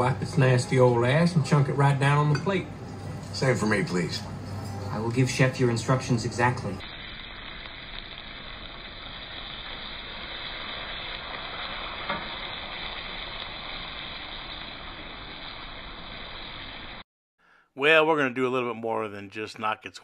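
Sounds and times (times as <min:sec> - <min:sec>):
steak sizzling in oil: 0:05.3 - 0:17.0.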